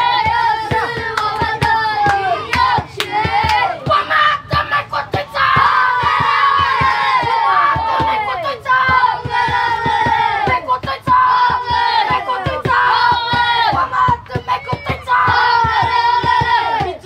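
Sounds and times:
children chanting a cheer: 0:00.0 - 0:17.0
rhythmic clapping: 0:00.0 - 0:17.0.

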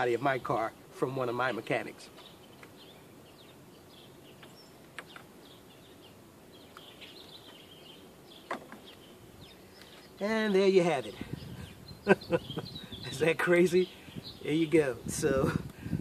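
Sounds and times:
small bird chirps: 0:02.1 - 0:14.7.

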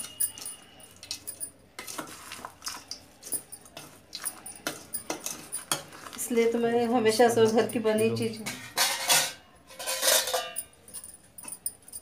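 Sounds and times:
dry snack mix rustling: 0:00.0 - 0:06.6
spoon scraping steel bowl: 0:00.0 - 0:06.6, 0:07.2 - 0:10.8.

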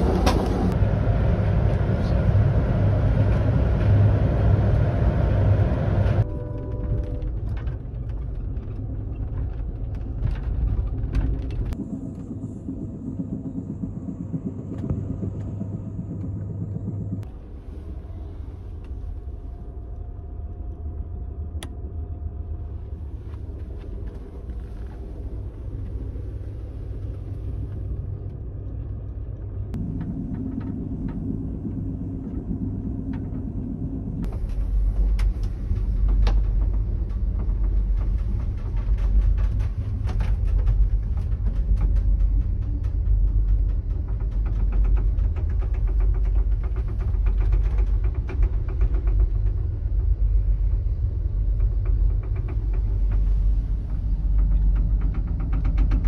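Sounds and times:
train rumble from inside car: 0:00.0 - 0:56.0
clicks and rattles: 0:51.4 - 0:56.0.

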